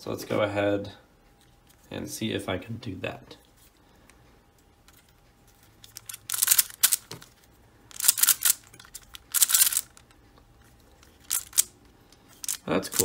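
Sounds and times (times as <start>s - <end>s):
plastic puzzle cube layers clicking: 6.0s - 7.1s, 7.9s - 10.0s, 11.3s - 11.7s.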